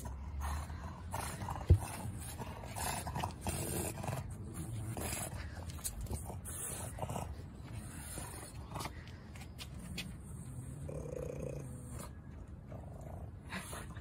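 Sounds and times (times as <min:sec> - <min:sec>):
low roar-like growling: 0:10.5 - 0:12.0.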